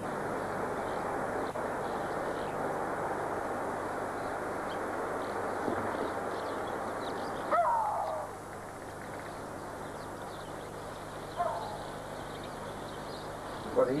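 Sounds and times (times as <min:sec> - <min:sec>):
steady background hiss: 0:00.0 - 0:14.0
bird calling: 0:04.2 - 0:14.0.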